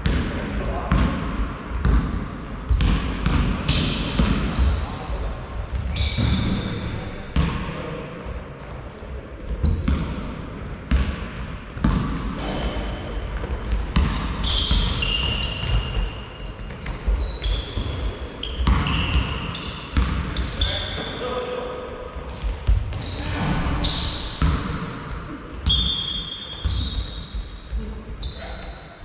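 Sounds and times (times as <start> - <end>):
basketball bouncing on hall floor: 0.0 - 7.9, 9.4 - 21.2, 22.1 - 28.6
shoes squeaking: 14.4 - 21.2, 25.6 - 28.7.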